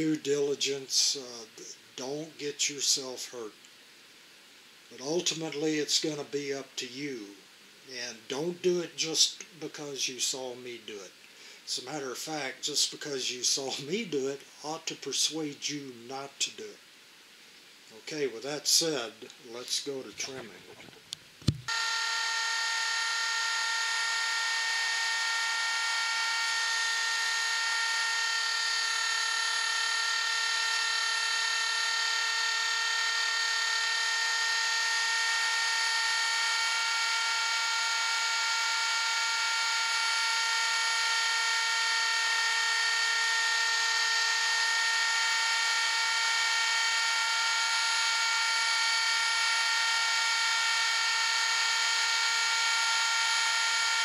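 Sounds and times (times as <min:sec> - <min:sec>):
router whining: 0:20.2 - 0:54.0.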